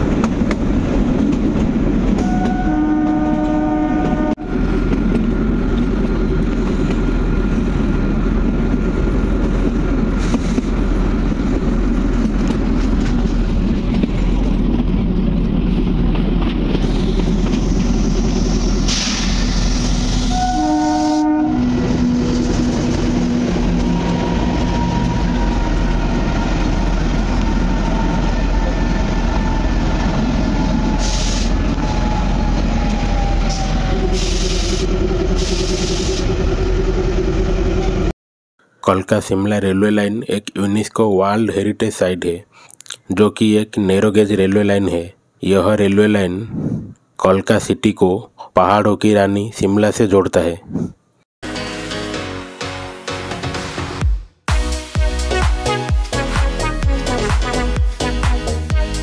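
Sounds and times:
locomotive horn: 2.2 - 4.6, 20.2 - 22.5, 54.5 - 59.0.

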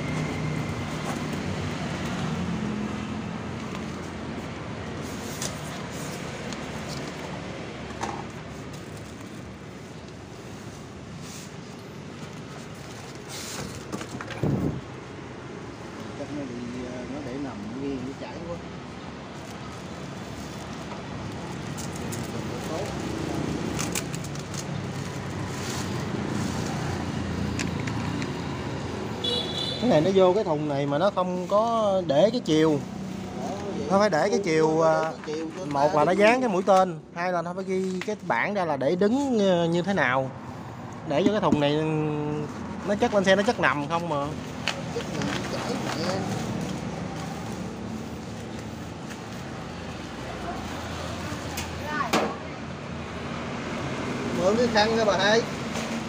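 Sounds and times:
road traffic noise: 0.0 - 56.0
plastic and bubble wrap crinkling: 8.3 - 13.9, 19.3 - 27.4, 42.2 - 51.2
plastic wrap rustling: 44.5 - 49.8.

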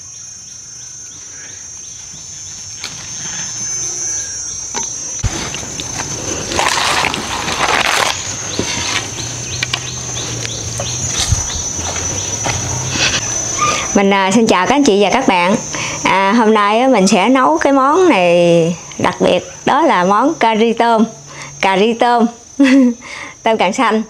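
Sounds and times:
insects chirring: 0.0 - 24.0
rustle of foliage: 5.2 - 13.4.

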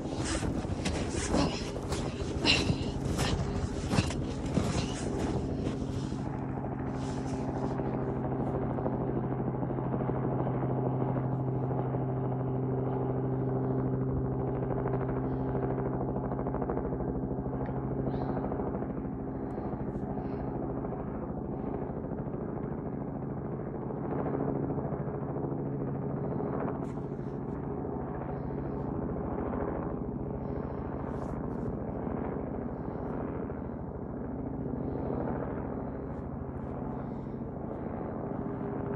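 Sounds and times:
helicopter flying overhead: 0.0 - 38.9.

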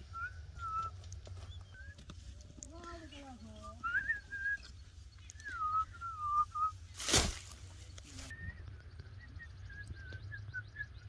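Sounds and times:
faint bird chirps: 0.0 - 11.0
foot stepping on grass: 6.9 - 8.3.

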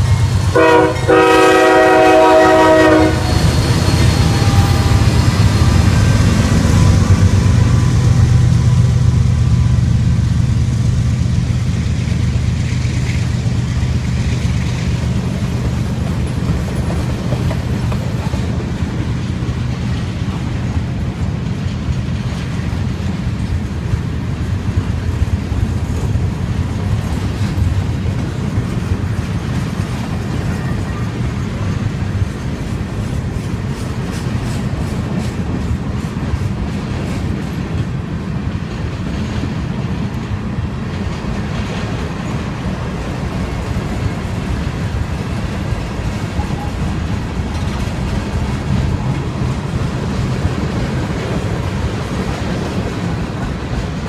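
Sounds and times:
train wheels rumbling on rails: 0.0 - 54.0
train wheel clicks: 3.2 - 54.0.

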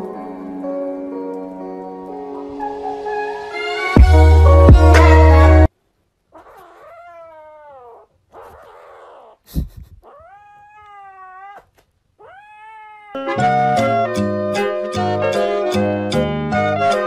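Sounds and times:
kitten meowing: 3.2 - 4.2, 6.4 - 9.4, 10.0 - 13.3.

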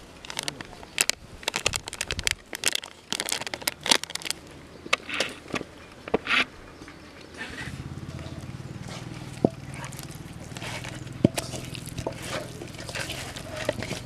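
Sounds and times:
spice powder crinkling and crackling: 0.2 - 4.5, 8.8 - 14.0.

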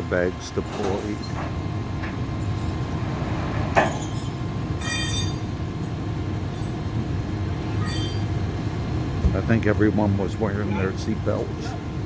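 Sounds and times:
truck engine rumbling: 0.0 - 12.0
high-pitched metallic squeals: 3.8 - 8.5.

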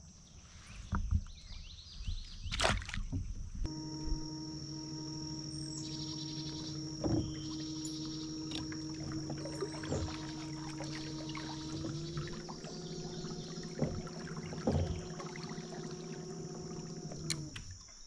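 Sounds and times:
birds chirping: 0.7 - 18.0
kayak knocks: 2.5 - 17.7
water noise: 2.5 - 18.0
high insect-like whine: 3.7 - 18.0.

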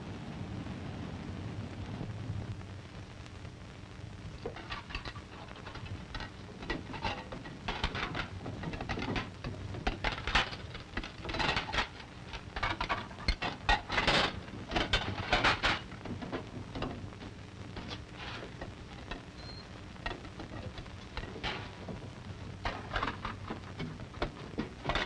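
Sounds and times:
film soundtrack hum and hiss: 0.0 - 25.0
dishes clattering and clinking: 4.4 - 17.0, 17.8 - 25.0.

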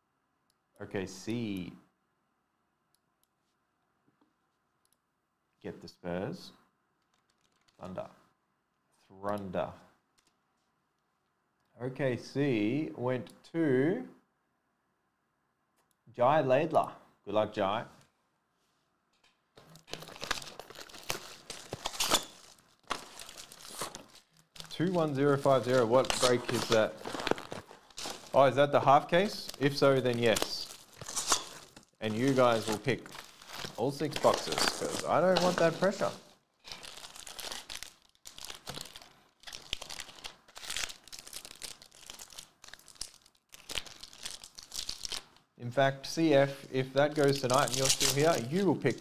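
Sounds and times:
plastic shrink-wrap crinkling and tearing: 7.0 - 7.9, 19.6 - 45.4, 47.0 - 49.0.

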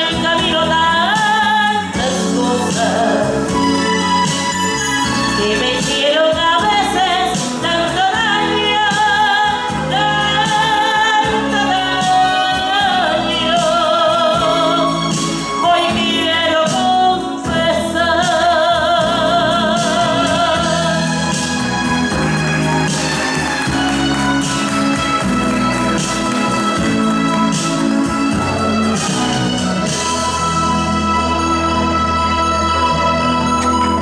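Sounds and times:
woman singing into a microphone: 0.0 - 21.6, 29.5 - 34.0
instrumental accompaniment: 0.0 - 34.0.

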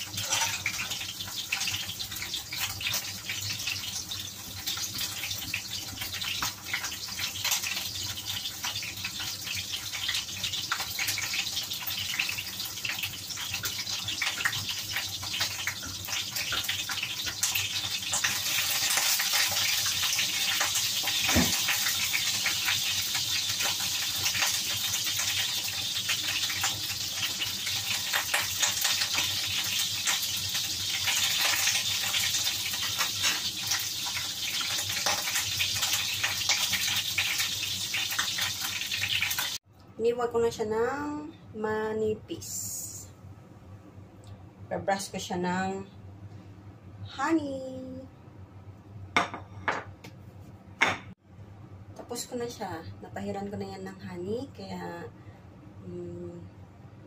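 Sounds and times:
meat sizzling in a pan: 0.0 - 39.6.

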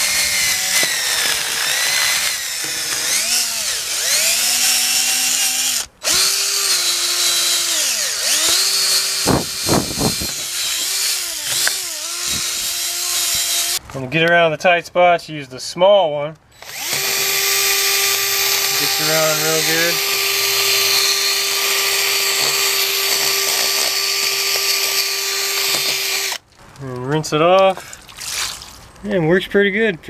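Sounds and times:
cordless drill motor whine: 0.0 - 13.8, 16.6 - 26.4.

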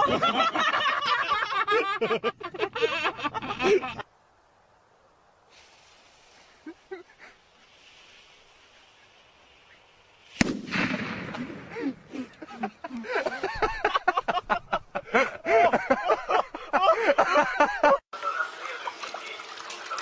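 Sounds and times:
excited voices and laughter: 0.0 - 4.1, 11.8 - 19.4
faint hiss of fuse: 4.9 - 11.2
explosion blast with rumbling tail: 10.4 - 12.1.

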